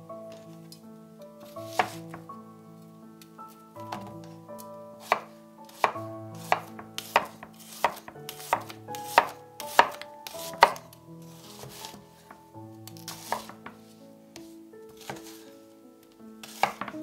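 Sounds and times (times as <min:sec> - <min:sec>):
knife chopping onion on board: 0:05.0 - 0:10.8, 0:16.5 - 0:17.0.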